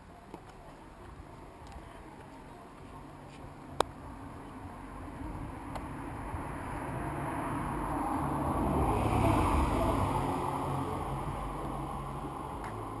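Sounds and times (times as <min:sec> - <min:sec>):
car passing on wet road: 0:06.6 - 0:13.0.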